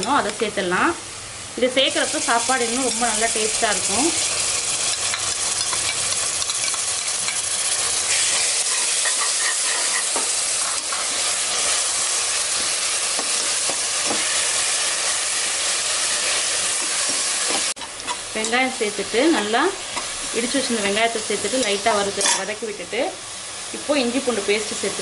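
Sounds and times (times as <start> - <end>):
onions sizzling in hot fat: 0.0 - 25.0
spoon scraping pan: 4.2 - 11.8, 21.3 - 22.5.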